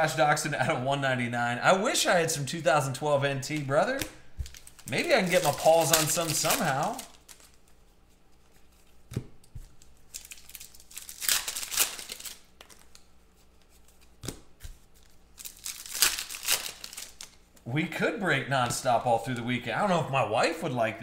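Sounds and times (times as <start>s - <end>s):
foil wrappers tearing and crinkling: 3.7s - 7.8s, 9.6s - 13.1s, 14.8s - 17.6s.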